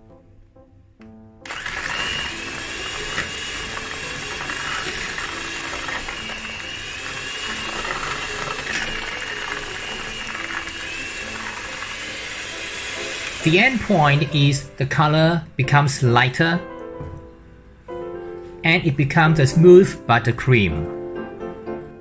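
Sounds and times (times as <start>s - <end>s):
electric hand mixer whining: 1.4s - 14.7s.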